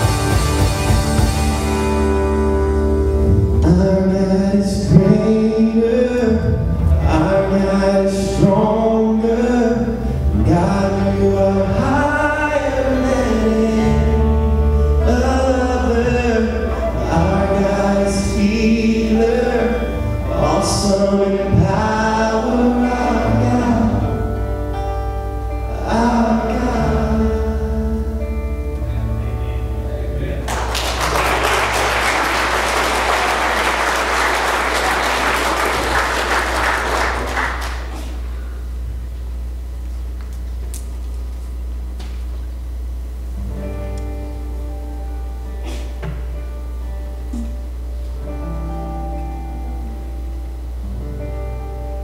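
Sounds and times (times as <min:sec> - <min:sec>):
worship band playing: 0:00.0 - 0:38.8
man singing: 0:03.6 - 0:24.5, 0:25.5 - 0:28.5.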